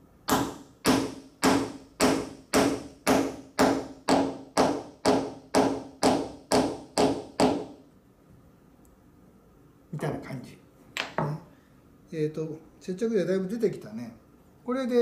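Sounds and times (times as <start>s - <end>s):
hammer tapping on wood: 0.3s - 7.8s.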